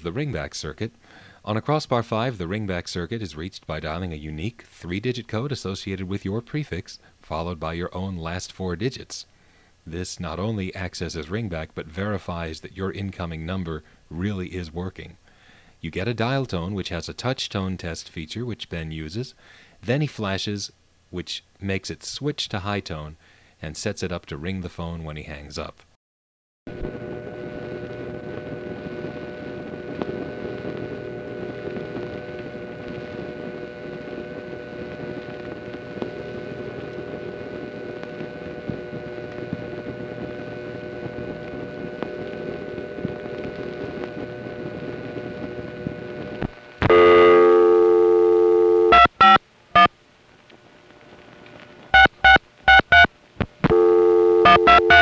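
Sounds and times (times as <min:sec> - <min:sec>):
telephone line hiss: 0:26.7 - 0:49.9, 0:51.9 - 0:55.0
dial tone: 0:46.9 - 0:49.9, 0:52.0 - 0:53.1, 0:53.7 - 0:55.0
touch-tone digits: 0:46.9 - 0:49.9, 0:52.0 - 0:53.1, 0:53.7 - 0:55.0.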